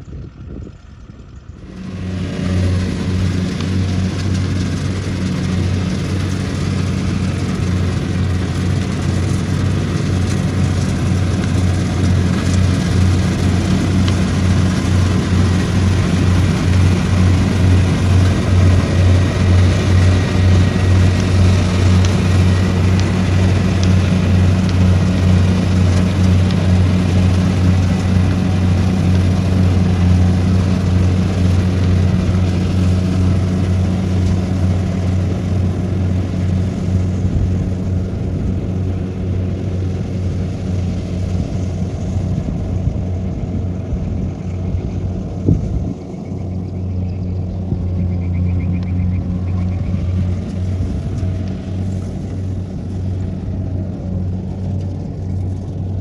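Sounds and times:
combine harvester humming: 0:00.0 - 0:56.0.

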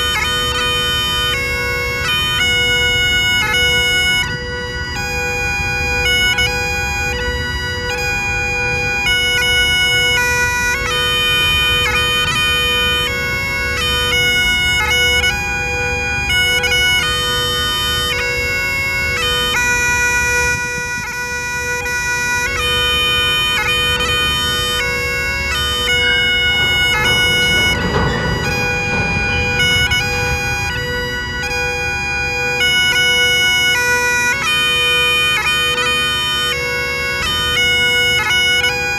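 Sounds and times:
bagpipes playing: 0:00.0 - 0:38.9
freight train rumbling past: 0:23.2 - 0:33.9.

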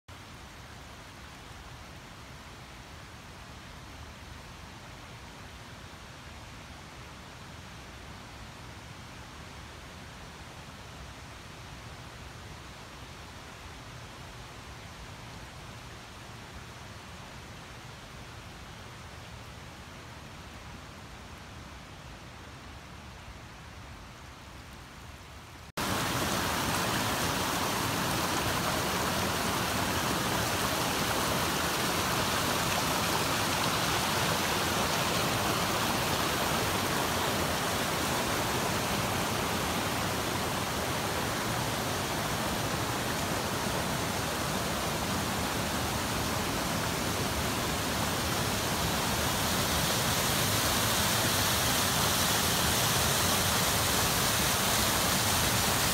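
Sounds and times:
water rushing over rocks: 0:25.8 - 0:55.9.

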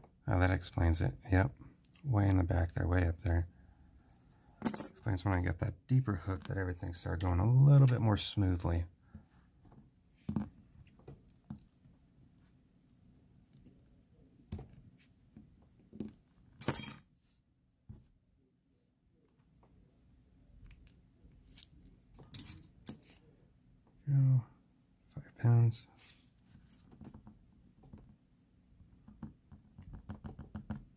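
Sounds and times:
ringing metal clink: 0:04.6 - 0:05.0, 0:16.6 - 0:17.1.

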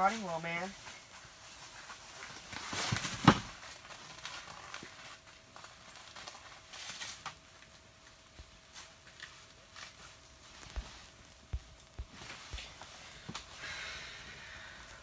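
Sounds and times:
glove and jacket rustling: 0:08.6 - 0:13.9.

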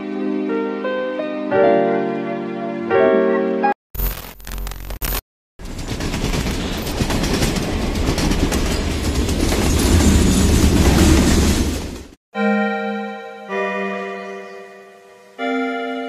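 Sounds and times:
passing train rumble: 0:05.6 - 0:12.2
train wheels clickety-clack: 0:05.6 - 0:12.2.

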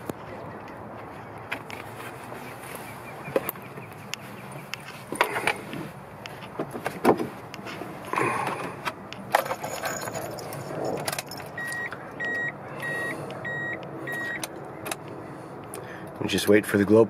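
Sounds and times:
keys jangling and clicking: 0:09.3 - 0:11.9
dashboard warning beeper: 0:11.6 - 0:14.5.

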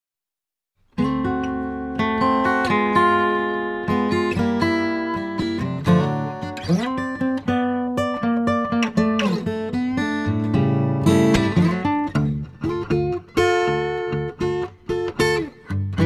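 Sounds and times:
plucked acoustic guitar: 0:00.9 - 0:16.0.

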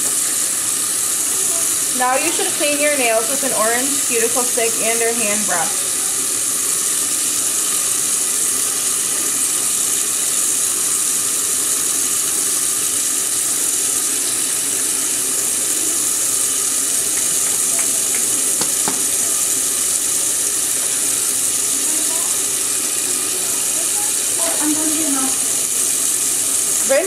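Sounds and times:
tap water running into sink: 0:00.0 - 0:27.0.

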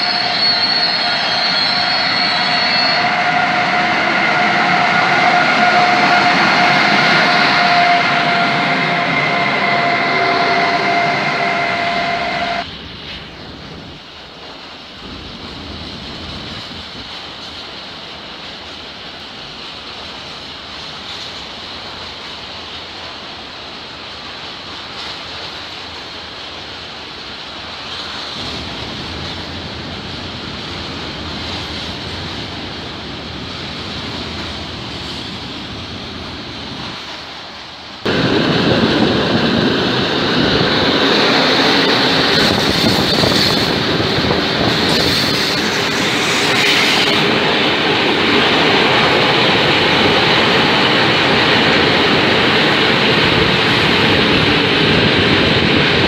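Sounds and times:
freight wagons rolling on rails: 0:00.0 - 0:56.0
wind on microphone: 0:38.0 - 0:56.0.

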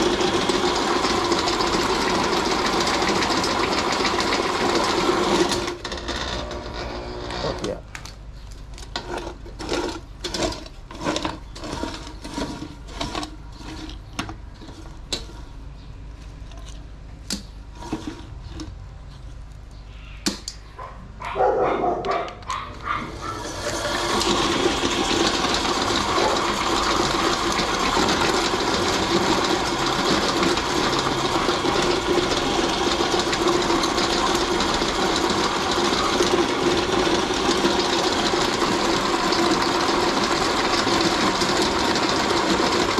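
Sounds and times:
meat grinder running: 0:00.0 - 0:07.8, 0:09.2 - 0:14.0, 0:22.8 - 0:42.9.

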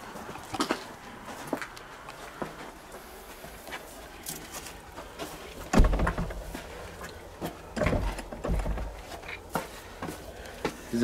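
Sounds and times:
heavy thumps on door: 0:05.7 - 0:06.4
door rattling: 0:05.7 - 0:06.5.

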